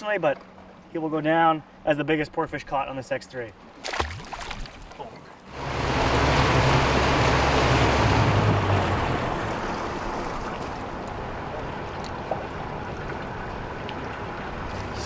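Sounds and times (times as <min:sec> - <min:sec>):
wind: 0:00.0 - 0:15.0
water rushing from wake: 0:03.6 - 0:15.0
outboard engine running: 0:04.6 - 0:15.0.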